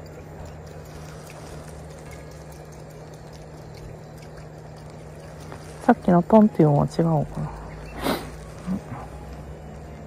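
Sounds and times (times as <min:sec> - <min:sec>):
low even hum: 0:00.0 - 0:10.0.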